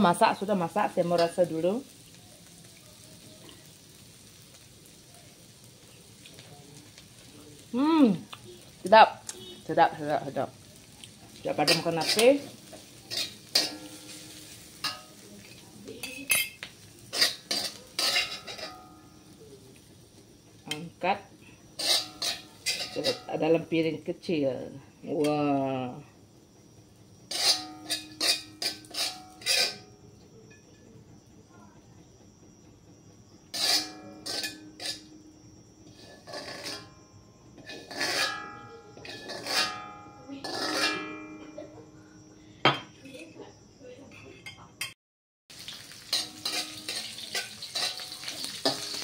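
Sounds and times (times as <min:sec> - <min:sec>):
wok ringing: 0:00.0 - 0:26.1, 0:27.2 - 0:30.9, 0:33.3 - 0:43.4, 0:44.1 - 0:49.0
metal spatula scraping wok: 0:11.4 - 0:19.2, 0:21.6 - 0:23.4, 0:27.2 - 0:30.0, 0:33.5 - 0:35.1, 0:35.8 - 0:37.0, 0:37.6 - 0:41.3, 0:45.9 - 0:49.0.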